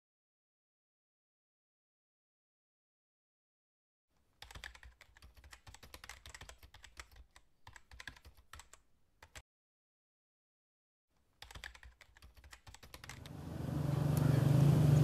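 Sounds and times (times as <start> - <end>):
keyboard key clicks: 4.4 - 9.4, 11.4 - 13.4.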